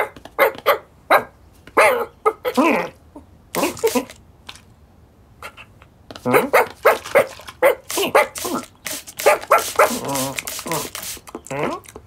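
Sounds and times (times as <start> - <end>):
person voicing puppy yaps: 0.0 - 3.0, 3.6 - 4.1, 5.4 - 10.9.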